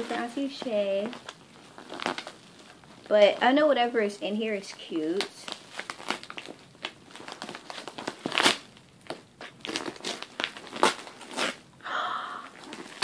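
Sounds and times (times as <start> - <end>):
wrapping paper crinkling: 0.0 - 11.6, 12.4 - 13.0.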